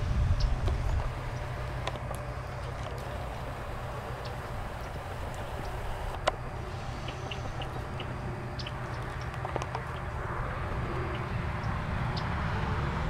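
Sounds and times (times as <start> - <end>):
wind rumble on microphone: 0.0 - 13.0
faint ticks and chirps: 0.4 - 10.1.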